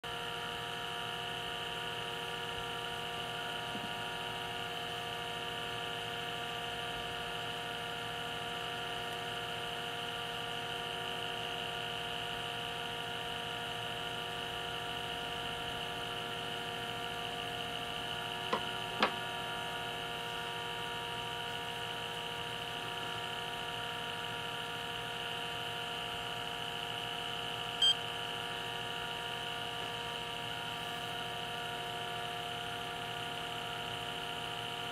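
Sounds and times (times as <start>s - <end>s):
electrical hum with high whine: 0.1s - 34.9s
digital scale beep: 27.8s - 28.0s.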